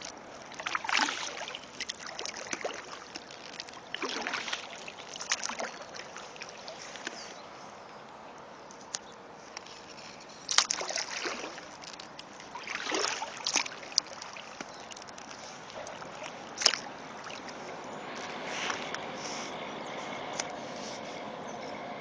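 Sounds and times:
paddle splashing in water: 0:00.0 - 0:07.6, 0:09.7 - 0:19.5.

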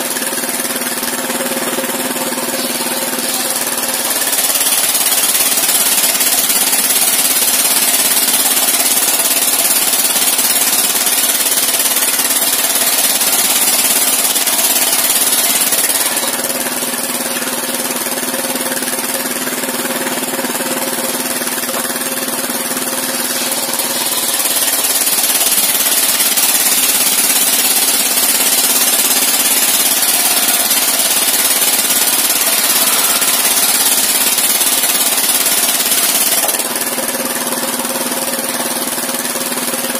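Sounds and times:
engine running under load: 0:00.0 - 0:39.9
saw blade cutting timber: 0:00.0 - 0:39.9.

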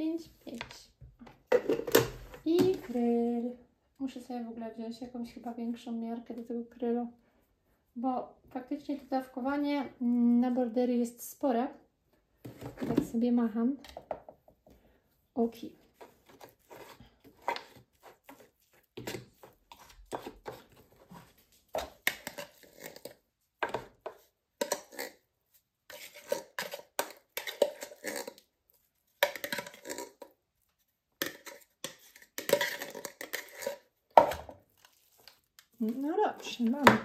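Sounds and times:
metal spoon clinking and scraping: 0:25.9 - 0:28.5, 0:29.2 - 0:30.3, 0:31.2 - 0:33.9.

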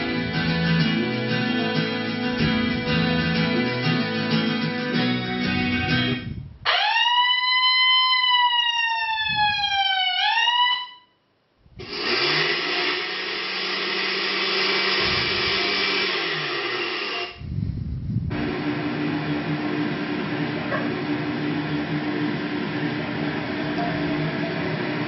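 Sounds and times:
ambulance siren wailing: 0:06.6 - 0:11.1, 0:23.2 - 0:25.0
blender whirring: 0:11.8 - 0:17.4, 0:18.4 - 0:25.0.

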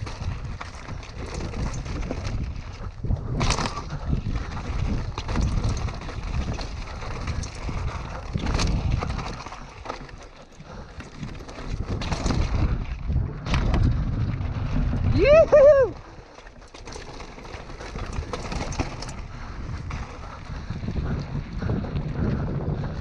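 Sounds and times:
tyres rolling over loose rock: 0:00.0 - 0:12.8, 0:16.2 - 0:20.9
bike knocking and rattling: 0:00.0 - 0:15.3, 0:16.0 - 0:23.0
wind rumble on microphone: 0:00.0 - 0:23.0.

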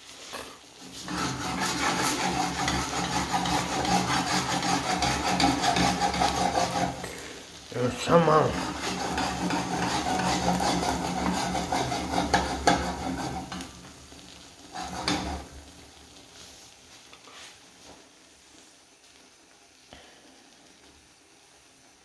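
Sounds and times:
eggs sizzling in a pan: 0:00.0 - 0:22.0
utensil scraping and clattering on pan: 0:00.3 - 0:07.3, 0:08.0 - 0:15.8.

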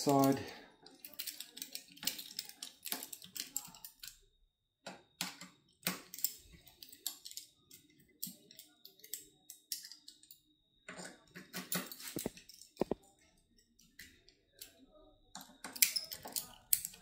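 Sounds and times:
allen key metallic clicks: 0:01.0 - 0:04.2.

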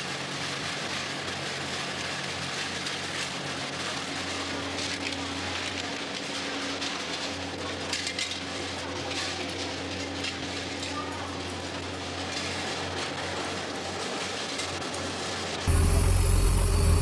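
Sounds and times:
low engine sound: 0:15.7 - 0:17.0
machine hum: 0:15.7 - 0:17.0.

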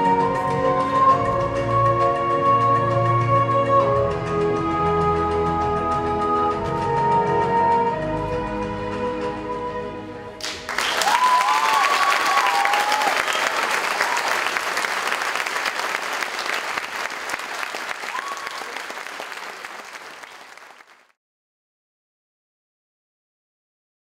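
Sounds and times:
music: 0:00.0 - 0:12.6
audience applause: 0:10.4 - 0:21.1.

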